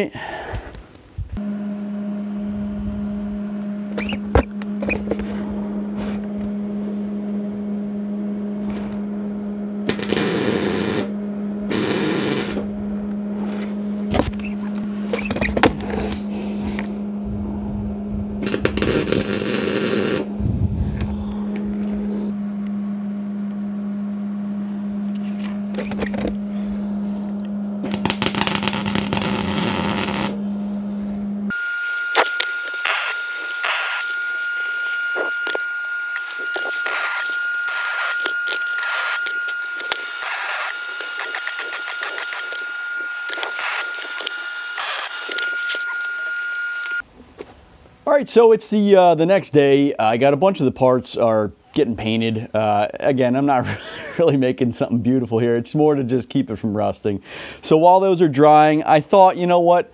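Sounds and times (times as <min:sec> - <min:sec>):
steady low hum: 0:00.1 - 0:57.8
welder arc crackling: 0:09.8 - 0:13.2, 0:18.4 - 0:20.4, 0:27.4 - 0:30.4, 0:31.8 - 0:47.0
welding tack blips: 0:09.9 - 0:11.1, 0:11.7 - 0:12.7, 0:18.4 - 0:20.3, 0:27.8 - 0:30.4, 0:31.9 - 0:47.0.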